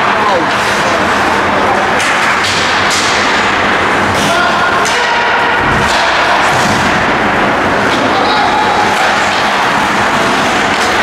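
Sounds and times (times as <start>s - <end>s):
hockey sticks and skates on ice: 0.0s - 7.2s, 7.8s - 11.0s.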